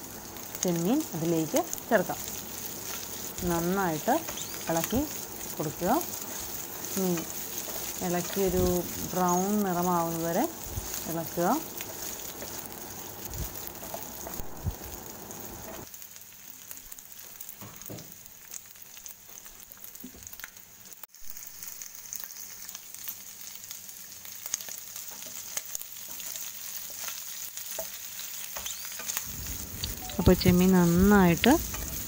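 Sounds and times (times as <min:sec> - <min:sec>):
prawns sizzling in a frying pan: 0:00.0 - 0:32.0
spatula scraping and tapping pan: 0:29.9 - 0:32.0.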